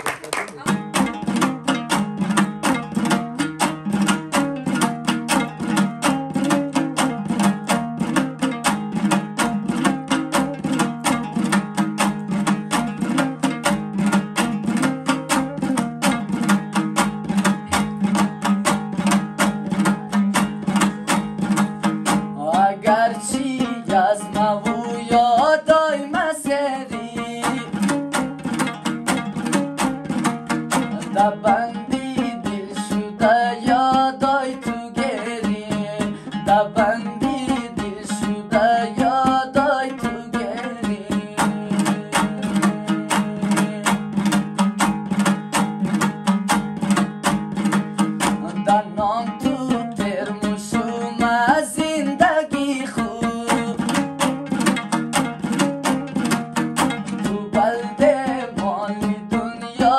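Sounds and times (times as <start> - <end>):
lute strummed fast: 0.0 - 59.9
man singing: 20.6 - 44.6, 48.0 - 59.9.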